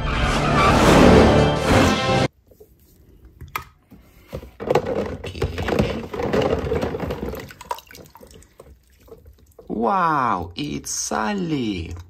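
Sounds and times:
water splashing and sloshing: 5.6s - 9.7s.

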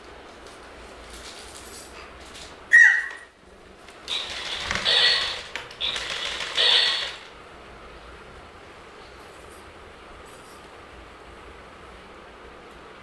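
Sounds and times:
toy parrot squeaky voice playback: 2.7s - 3.2s.

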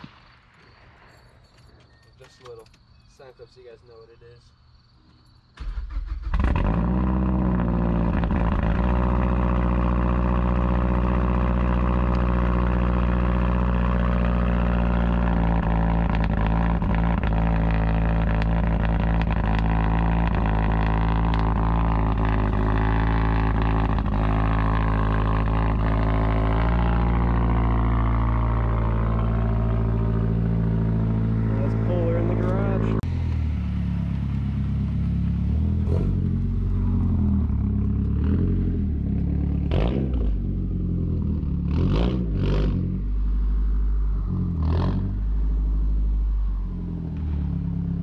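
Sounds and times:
car engine idling: 5.6s - 39.7s.

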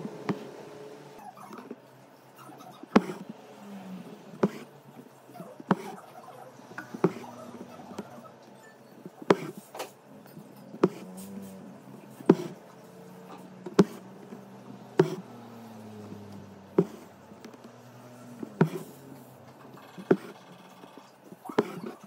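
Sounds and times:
thread rasping through fabric: 2.9s - 3.3s, 13.6s - 15.3s, 16.8s - 17.8s, 21.6s - 22.0s
needle tapping through canvas: 4.4s - 4.7s, 6.9s - 8.1s, 9.3s - 9.6s, 10.8s - 11.1s, 13.6s - 14.4s, 15.0s - 15.2s, 16.8s - 17.6s, 18.5s - 18.9s, 21.6s - 21.9s.

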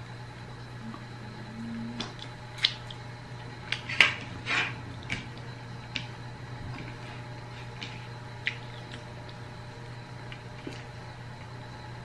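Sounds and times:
chewing smacks and clicks: 2.0s - 3.0s.

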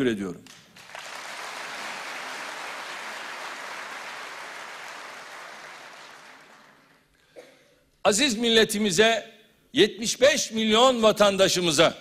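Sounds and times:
large audience applauding: 0.5s - 7.2s.

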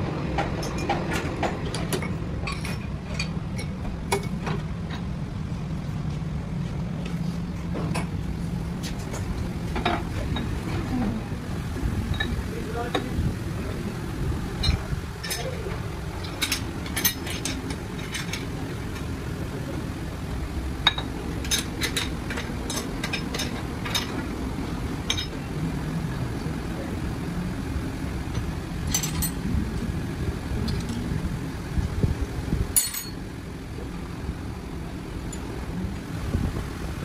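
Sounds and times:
low hum of machinery: 0.0s - 37.0s.

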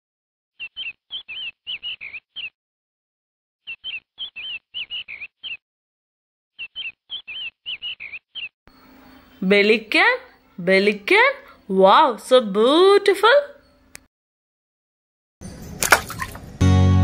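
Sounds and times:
bird chirping: 0.6s - 2.6s, 3.6s - 5.6s, 6.6s - 11.7s.

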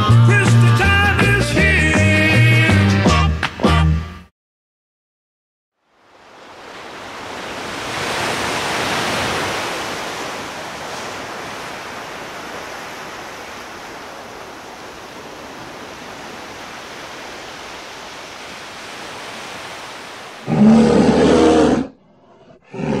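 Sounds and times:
sea surf rushing: 5.9s - 21.7s.

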